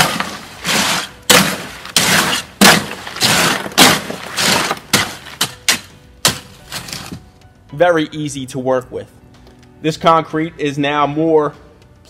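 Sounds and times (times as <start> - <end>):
hoe scraping wet concrete: 0.0 - 7.2.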